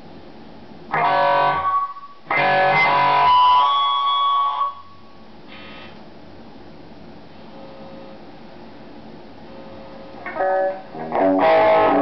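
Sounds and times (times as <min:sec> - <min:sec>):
low amp noise: 0:00.0 - 0:12.0
electric guitar: 0:00.9 - 0:04.7, 0:10.2 - 0:12.0.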